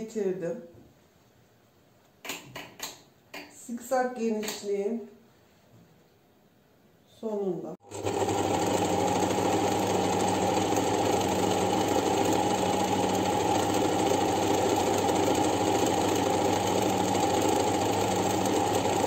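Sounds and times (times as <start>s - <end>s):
sewing machine running: 7.8s - 19.0s.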